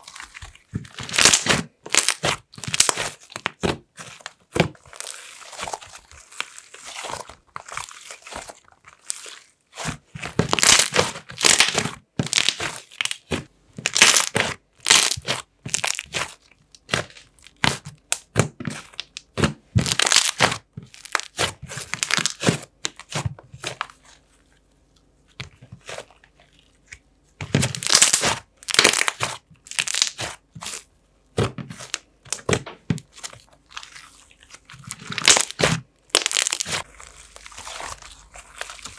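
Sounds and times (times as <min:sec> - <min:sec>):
slime squishing and crackling: 0:00.0 - 0:24.6, 0:25.4 - 0:38.9.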